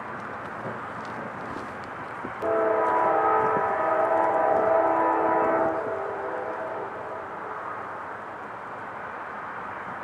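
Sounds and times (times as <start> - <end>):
locomotive air horn chord: 2.4 - 7.6.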